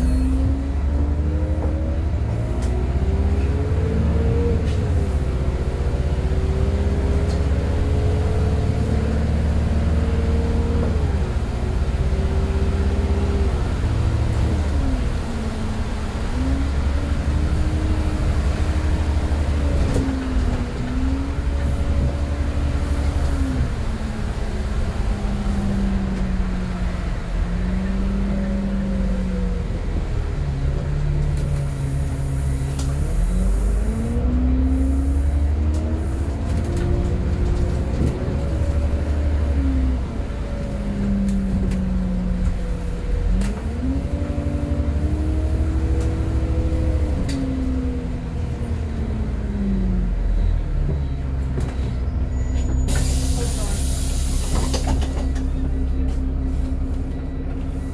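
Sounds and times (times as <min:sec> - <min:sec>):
bus engine accelerating: 0:00.0 - 0:57.9.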